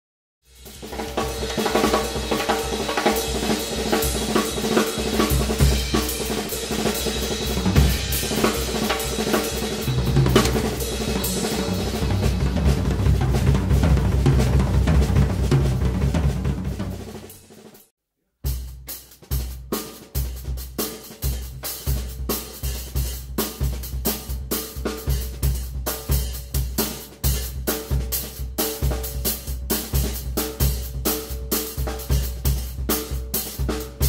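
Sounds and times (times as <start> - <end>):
drum kit solo: 0.5 - 34.0
bass drum strokes: 4.1 - 17.3.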